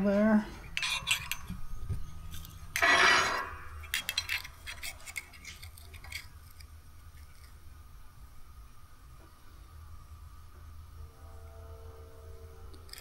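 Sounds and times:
metal scraping on metal: 0.6 - 7.5, 11.2 - 13.0.

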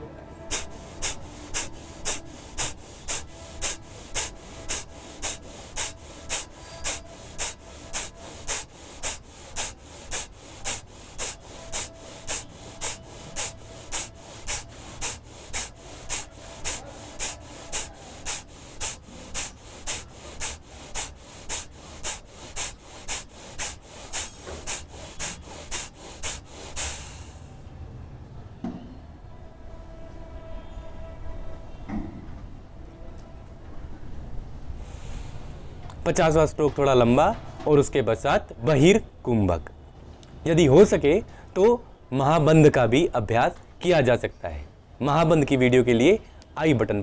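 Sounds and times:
sharp nasal exhalations: 0.3 - 27.5, 34.8 - 35.8.

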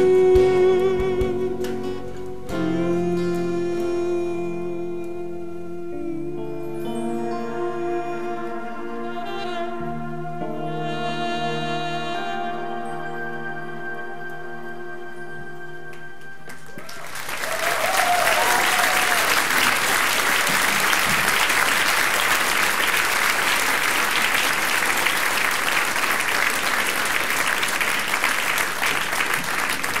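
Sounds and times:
audience applause: 16.5 - 30.0
audience cheering: 16.7 - 30.0.

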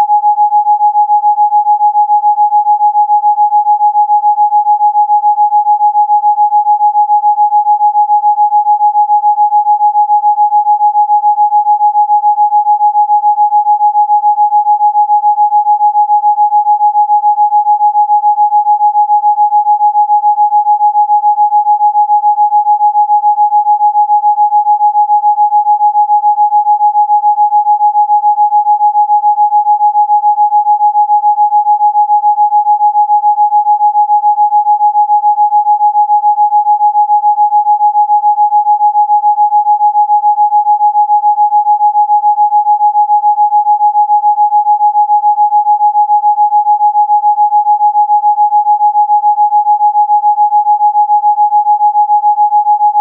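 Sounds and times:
pulsing electronic sine tone: 0.0 - 0.6.

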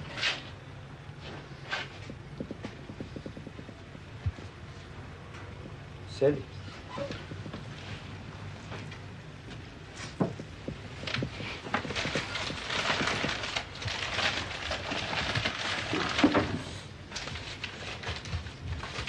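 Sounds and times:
newspaper rustling and crackling: 10.0 - 19.0.

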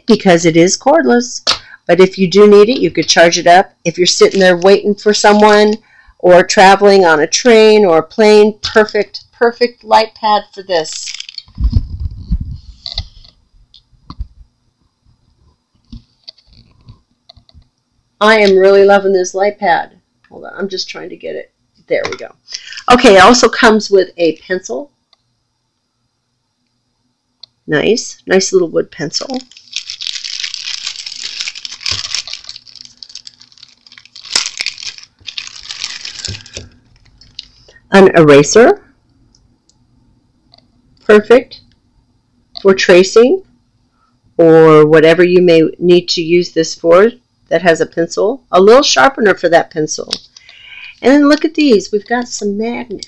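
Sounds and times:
plastic bag crinkling: 10.8 - 13.3, 29.2 - 37.6.

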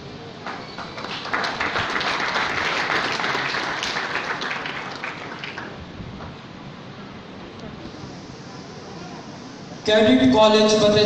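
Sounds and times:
audience applauding: 0.4 - 5.8.

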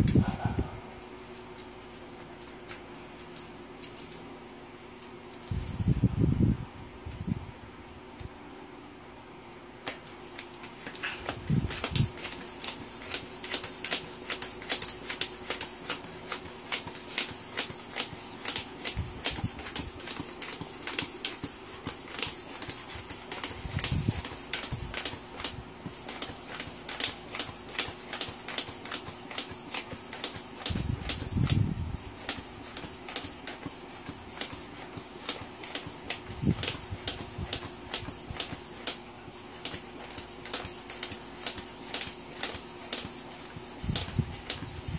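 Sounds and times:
floor pump strokes: 9.9 - 44.9.

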